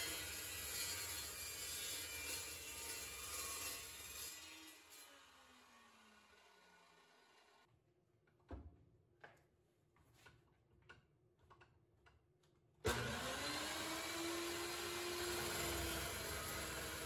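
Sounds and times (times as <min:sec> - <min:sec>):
metal chop saw cutting steel: 0:00.0 - 0:07.6, 0:12.9 - 0:17.0.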